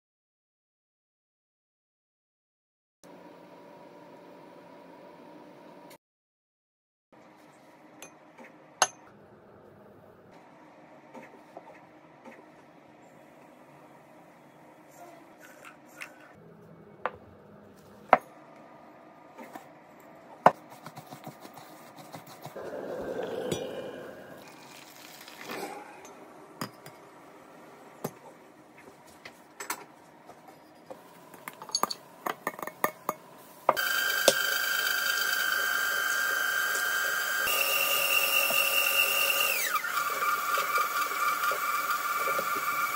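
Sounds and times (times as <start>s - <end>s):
bowls and utensils clinking: 23.4s - 23.8s, 31.4s - 33.2s
liquid poured into metal bowl: 24.4s - 25.7s
stand mixer whining: 33.8s - 42.9s.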